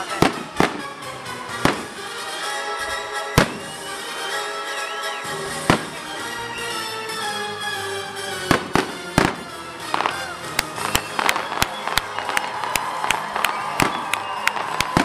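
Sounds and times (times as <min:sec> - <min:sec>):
fireworks banging: 0:00.0 - 0:02.3, 0:03.4 - 0:04.0, 0:05.5 - 0:06.2, 0:08.3 - 0:15.0
fireworks crackling: 0:00.0 - 0:04.4, 0:05.3 - 0:06.9, 0:08.0 - 0:15.0
music: 0:00.0 - 0:15.0.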